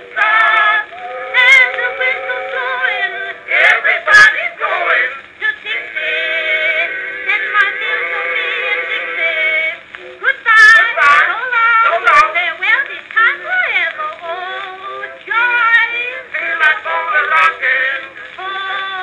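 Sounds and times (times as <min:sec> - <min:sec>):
band accompaniment: 0:00.0 - 0:12.2
old recording of voices singing: 0:00.0 - 0:19.0.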